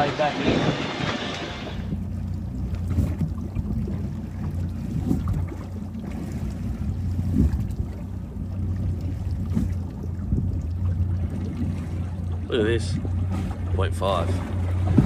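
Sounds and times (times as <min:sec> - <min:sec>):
wind rumbling on microphone: 0:00.0 - 0:12.1
knocks on boat: 0:14.6 - 0:15.0.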